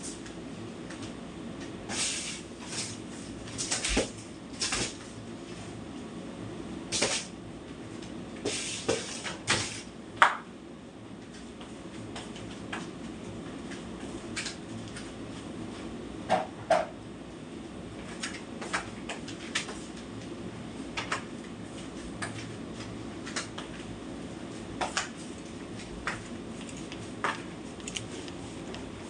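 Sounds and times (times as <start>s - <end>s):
broom sweeping tiled floor: 1.8s - 5.7s, 6.9s - 7.3s, 8.4s - 9.9s.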